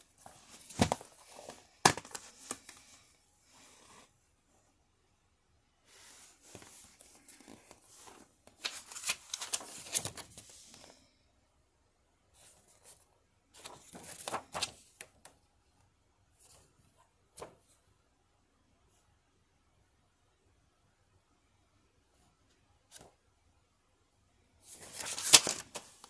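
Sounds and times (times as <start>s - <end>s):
paper and plastic rustling: 0.2s - 3.0s, 6.2s - 10.9s, 24.7s - 26.0s.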